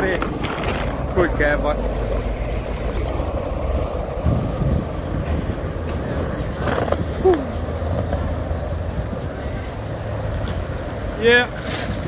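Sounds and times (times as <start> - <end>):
skate wheels rolling on paving: 0.0 - 12.0.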